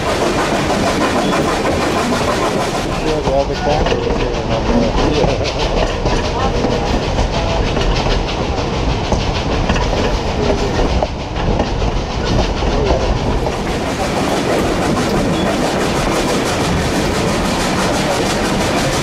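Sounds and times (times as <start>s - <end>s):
fast rhythmic ticks: 0.0s - 19.0s
steam train rumbling: 0.0s - 19.0s.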